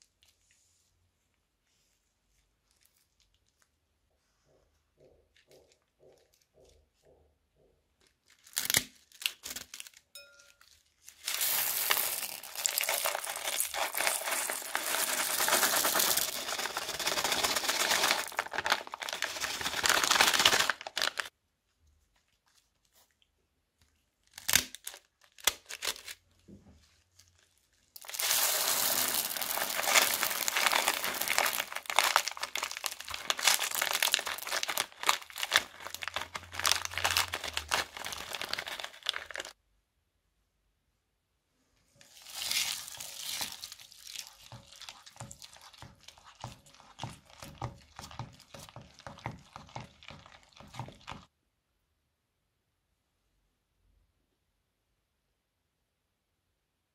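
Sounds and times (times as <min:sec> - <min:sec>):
plastic bags crinkling: 0:08.3 - 0:21.3, 0:27.2 - 0:39.6, 0:42.1 - 0:51.3
plastic beads rattling into bowl: 0:11.1 - 0:21.3, 0:28.0 - 0:39.6.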